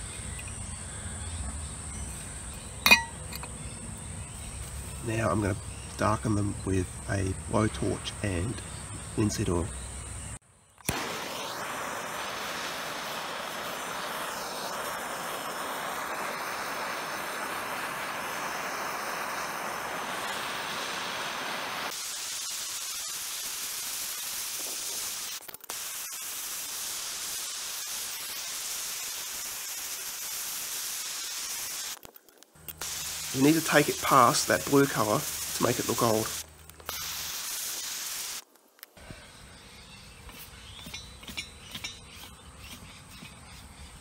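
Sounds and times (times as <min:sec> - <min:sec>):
blowtorch flame blowing: 0:10.8 - 0:32.0, 0:32.8 - 0:38.8.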